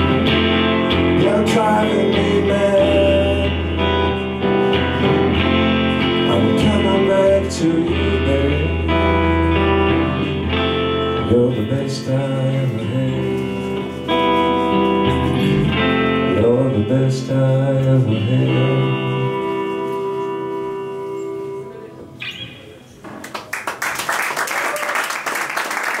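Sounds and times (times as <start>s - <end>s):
person singing with guitar: 0.0s - 22.6s
audience applause: 23.1s - 26.0s.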